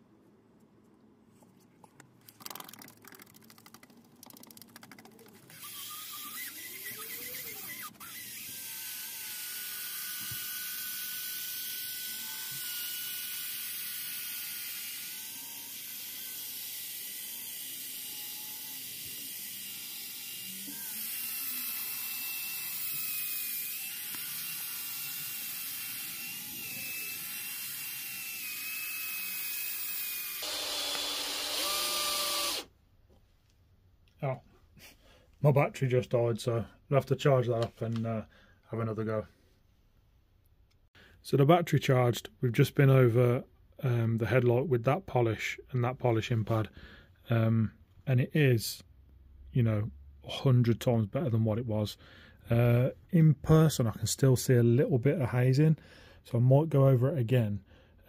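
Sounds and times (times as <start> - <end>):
machine polisher whirring: 19.0 - 32.7.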